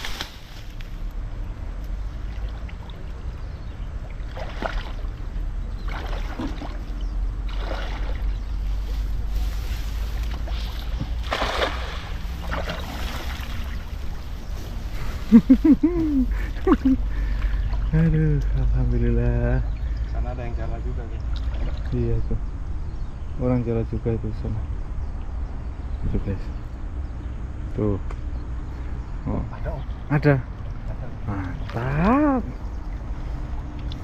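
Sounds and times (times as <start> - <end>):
water sloshing from wading: 0.0 - 18.2, 21.1 - 22.0
net splashing onto water: 7.5 - 8.3, 10.4 - 13.8.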